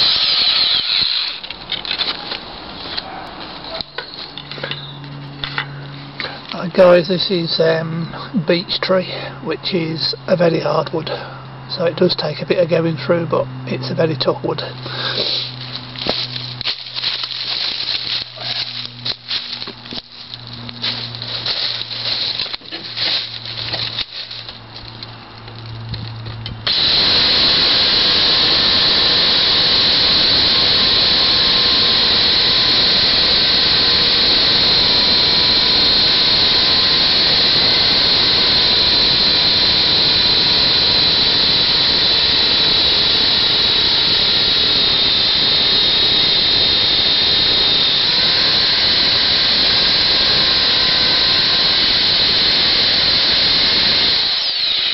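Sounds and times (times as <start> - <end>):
electric chainsaw cutting wood: 0.0 - 2.7, 13.4 - 54.9
clicks and rustles: 15.2 - 26.6.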